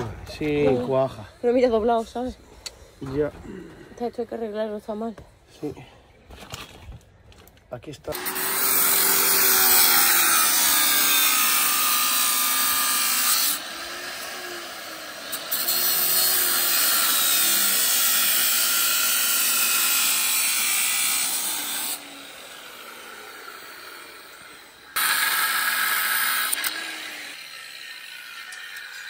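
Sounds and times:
angle grinder cutting steel: 8.1s - 29.0s.

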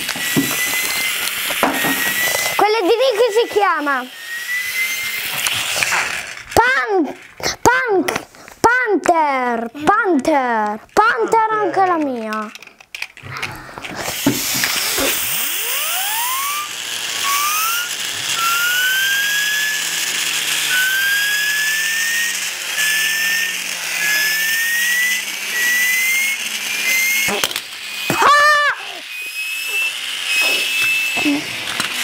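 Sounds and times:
spinning turbo whine: 0.0s - 7.8s, 13.9s - 32.0s
wavering squeal: 15.3s - 19.8s, 20.6s - 27.3s.

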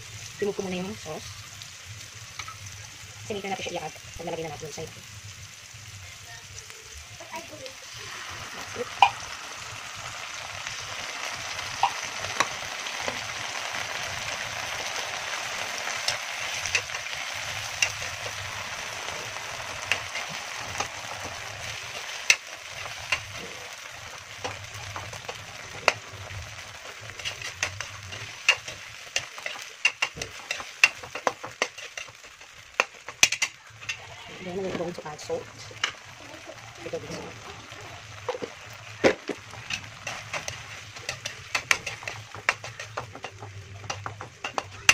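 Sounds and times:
fish sizzling in a wok: 0.0s - 44.9s
metal spatula scraping wok: 10.4s - 36.1s, 38.2s - 44.9s.

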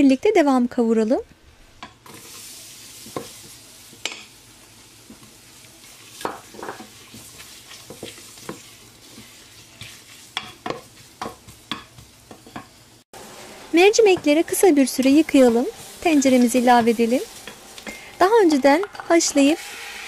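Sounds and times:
onions sizzling in oil: 1.6s - 20.0s
wooden spoon scraping a pot: 5.2s - 20.0s.

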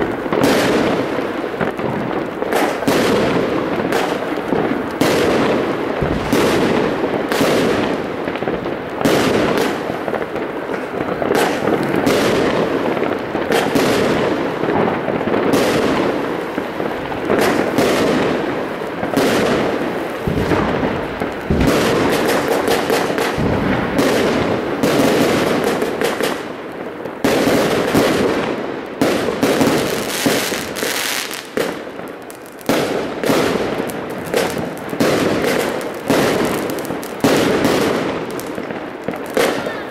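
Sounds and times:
fireworks bangs and crackles: 0.0s - 39.9s
sharp firework reports: 29.0s - 39.9s.

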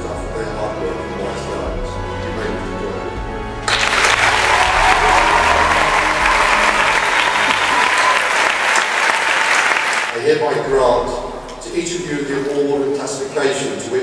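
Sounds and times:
audience applauding: 3.6s - 10.2s.

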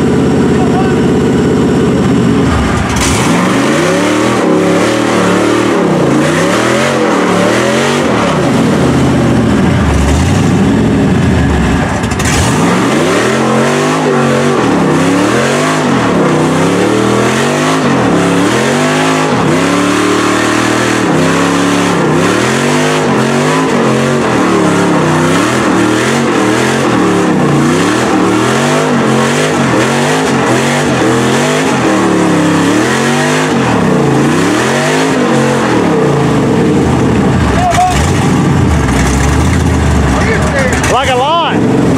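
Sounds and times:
truck engine revving: 0.0s - 41.9s
tyres churning through mud: 2.2s - 41.9s.

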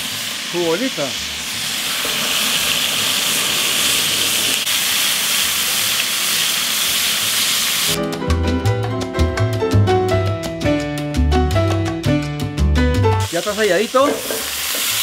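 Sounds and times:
meat sizzling in hot oil: 0.0s - 8.0s, 13.2s - 15.0s
salsa music with bass line: 8.0s - 13.3s.

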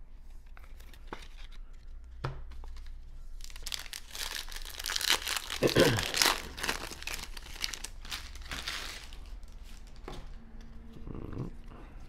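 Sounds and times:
foil wrapper crinkling and tearing: 2.6s - 9.9s.

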